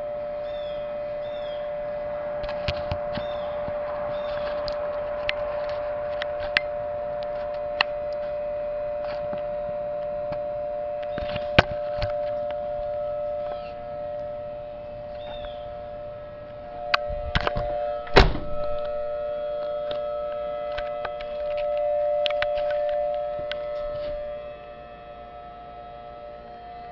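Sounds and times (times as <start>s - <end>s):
two-tone siren through speaker: 0.0s - 26.9s
sharp thumps: 11.0s - 24.4s.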